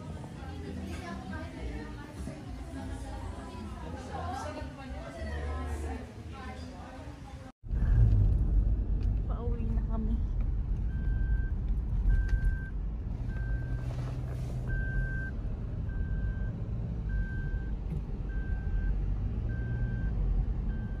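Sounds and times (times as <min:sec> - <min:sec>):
car cabin road and engine noise: 0:07.6 - 0:21.0
short electronic beeps: 0:14.7 - 0:15.3.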